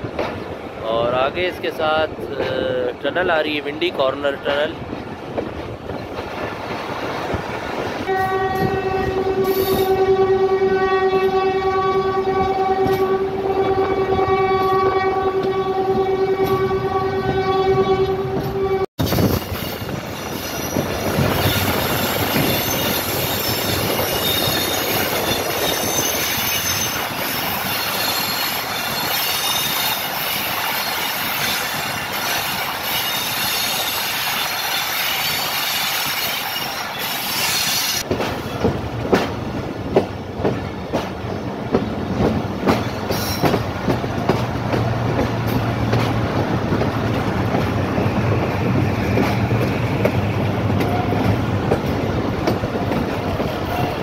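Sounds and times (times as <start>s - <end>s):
train wheels on rails: 0.0s - 54.0s
locomotive horn blast: 8.0s - 18.9s.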